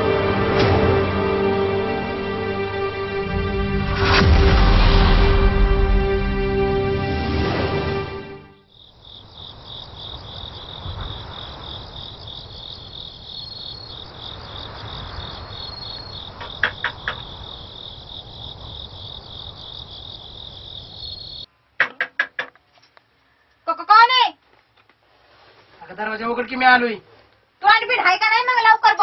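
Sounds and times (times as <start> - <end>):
low rumble: 0.0 - 8.5
crickets chirping: 7.8 - 21.5
sharp knocks: 16.4 - 17.3, 21.8 - 22.6.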